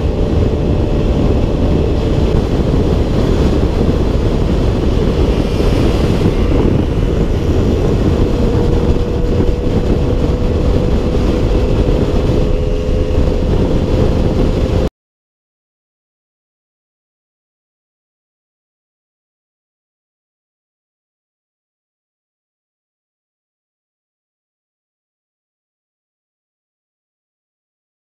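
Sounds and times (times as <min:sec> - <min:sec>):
scooter engine running: 0:00.0 - 0:14.9
wind buffeting microphone: 0:00.0 - 0:14.9.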